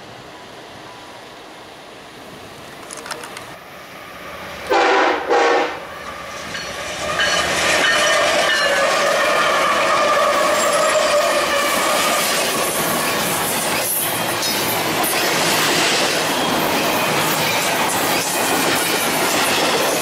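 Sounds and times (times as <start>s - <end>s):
diesel locomotives rumbling past: 0.0s - 20.0s
steel wheels on rail: 0.0s - 20.0s
locomotive horn blasts: 4.7s - 5.8s.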